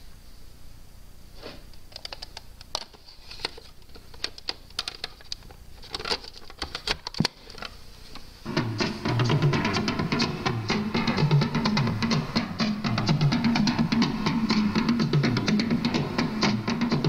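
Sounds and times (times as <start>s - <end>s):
tape cartridge clicking and scraping: 1.9s - 7.8s
music from tape: 8.4s - 17.0s.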